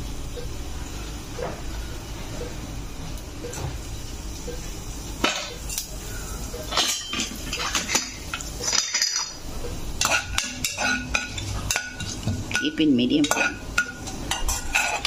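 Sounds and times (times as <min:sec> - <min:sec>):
metal utensils clinking: 0:06.6 - 0:09.4, 0:10.0 - 0:15.0.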